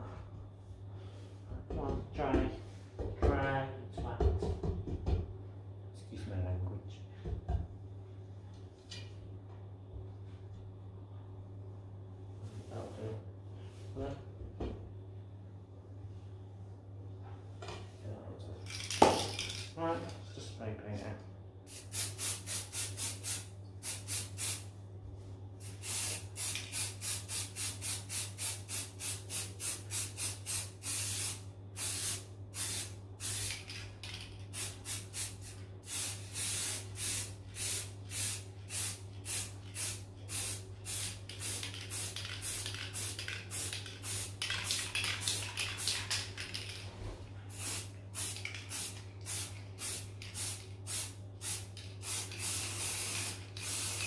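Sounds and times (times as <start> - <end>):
spray paint can hissing: 21.7 - 24.6, 25.6 - 46.7, 47.5 - 54.0.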